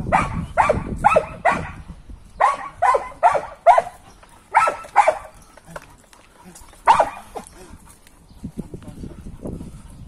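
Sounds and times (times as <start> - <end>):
dog barking sharply: 6.9 - 7.2.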